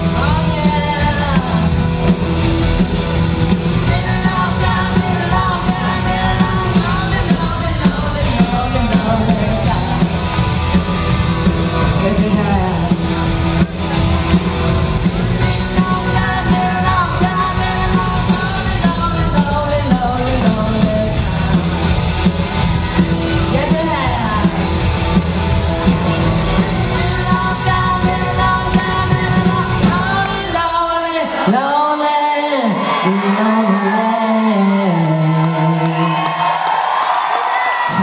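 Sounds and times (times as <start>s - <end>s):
bass guitar: 0.0s - 31.8s
drums: 0.0s - 38.0s
female vocal: 0.1s - 1.7s.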